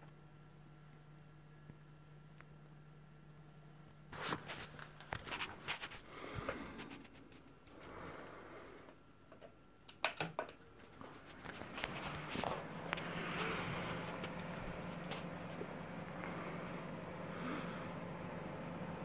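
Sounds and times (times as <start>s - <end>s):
handling and rustling: 4.1s - 7.8s, 10.7s - 15.8s
computer fan rushing: 10.7s - 19.0s.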